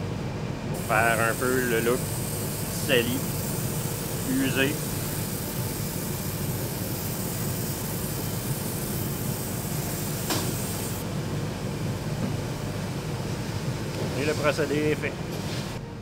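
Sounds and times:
airbrush hissing: 0:00.8 - 0:11.0.

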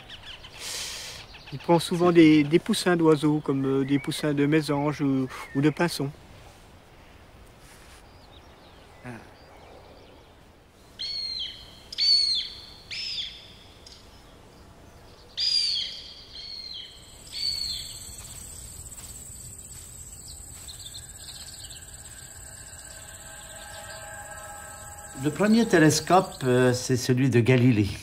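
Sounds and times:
bird calling: 0:15.3 - 0:27.0
insects buzzing: 0:15.8 - 0:27.2.

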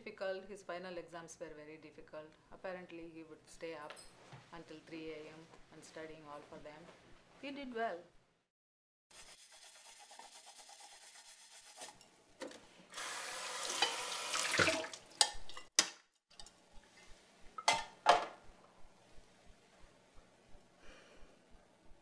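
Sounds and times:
dishes and pots clanking: 0:17.6 - 0:18.4.

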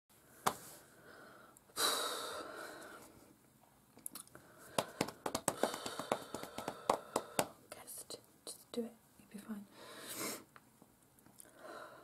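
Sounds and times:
woman breathing in deeply: 0:00.8 - 0:03.2, 0:04.4 - 0:07.6, 0:09.7 - 0:10.5, 0:11.4 - 0:12.0.

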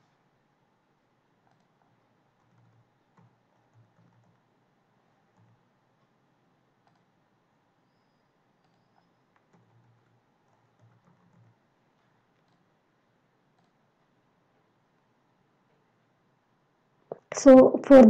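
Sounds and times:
low room hiss: 0:00.0 - 0:18.0.

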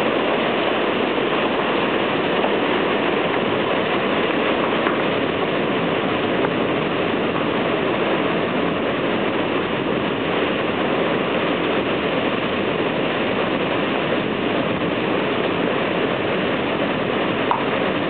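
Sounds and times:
heavy rain pouring: 0:00.0 - 0:18.0.

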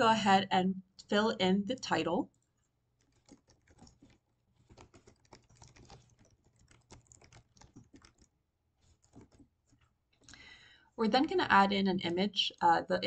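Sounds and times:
typing on computer keyboard: 0:02.3 - 0:10.4.

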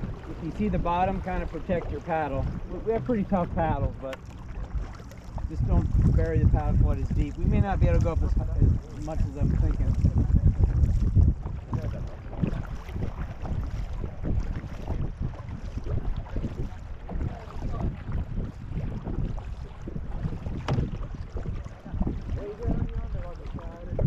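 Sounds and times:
paddles pulling through water: 0:00.0 - 0:24.0
wind buffeting microphone: 0:00.0 - 0:24.0.

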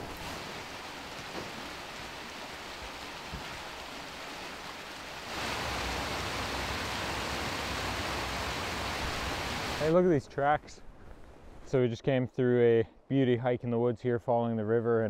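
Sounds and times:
river water flowing: 0:00.0 - 0:10.0.

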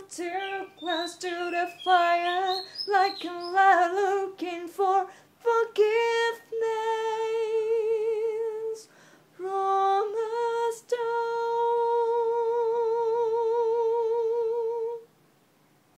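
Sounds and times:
person singing unaccompanied: 0:00.0 - 0:15.2
quick breath: 0:08.9 - 0:09.4.

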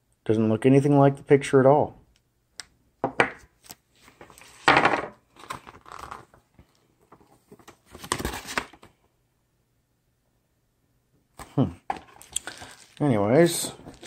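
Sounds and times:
plastic bags crinkling: 0:12.1 - 0:14.0.

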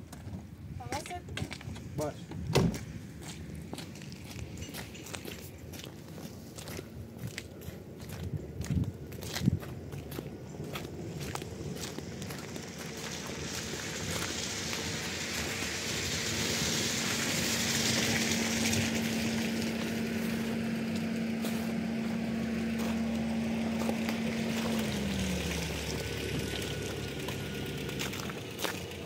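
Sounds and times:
engine hum: 0:00.0 - 0:29.0
rushing hiss: 0:11.7 - 0:20.8.

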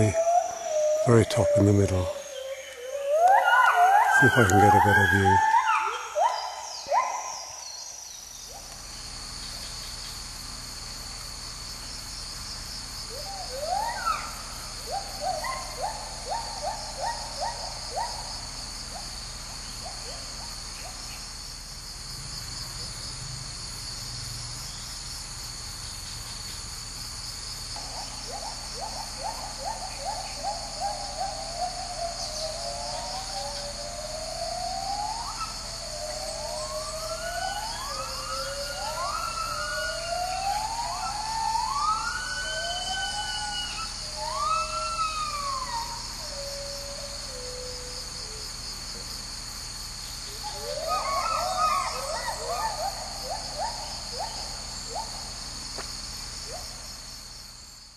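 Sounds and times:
gibbon whooping call: 0:00.0 - 0:07.4, 0:13.1 - 0:18.3, 0:27.8 - 0:48.4, 0:50.3 - 0:55.3
high-pitched insect chorus: 0:00.0 - 0:57.9.

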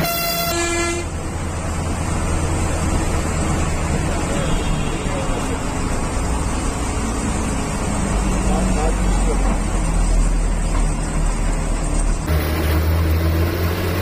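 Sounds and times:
bus horn: 0:00.0 - 0:01.3, 0:04.3 - 0:05.3
bus engine rumble: 0:00.0 - 0:14.0.

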